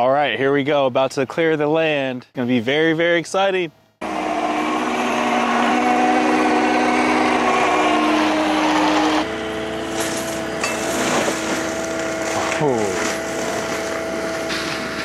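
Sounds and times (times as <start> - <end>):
forestry mulcher machine running: 4.0 - 15.0.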